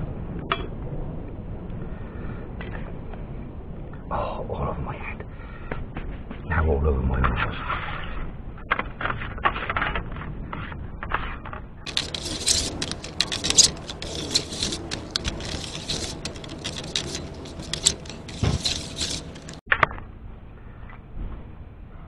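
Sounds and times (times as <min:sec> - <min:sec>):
plastic spreader scraping a board: 0:11.9 - 0:19.6.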